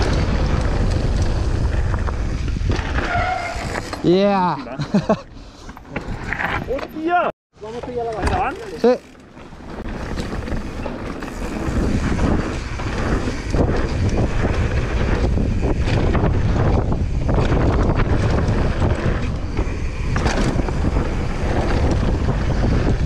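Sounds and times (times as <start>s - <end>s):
wind buffeting microphone: 0.0s - 3.8s, 8.1s - 23.0s
bike tyres on dirt trail: 0.0s - 23.0s
bike knocks and rattles: 5.7s - 23.0s.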